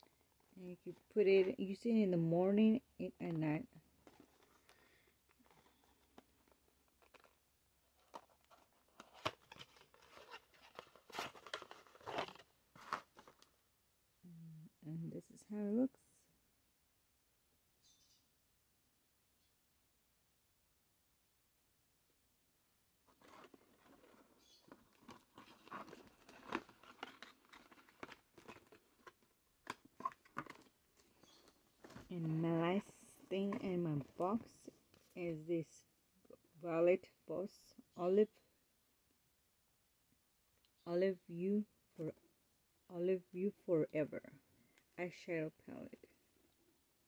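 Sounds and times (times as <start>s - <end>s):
cardboard and paper rustling: 3.8s - 13.5s, 23.1s - 35.2s.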